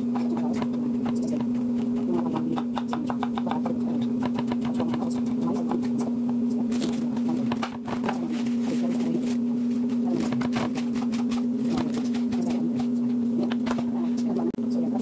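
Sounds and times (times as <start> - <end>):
steady low hum: 0.0 - 15.0
knife tapping on cutting board: 2.4 - 3.6.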